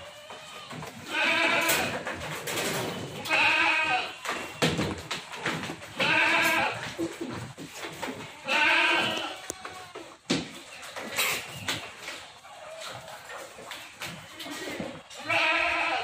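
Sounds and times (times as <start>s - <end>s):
goat bleating: 0.0s - 2.2s, 2.8s - 4.7s, 5.8s - 10.2s, 14.2s - 16.0s.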